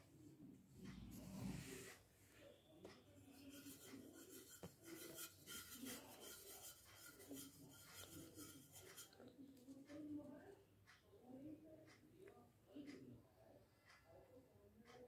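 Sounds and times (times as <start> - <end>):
paintbrush rubbing and scratching: 3.2 - 9.3.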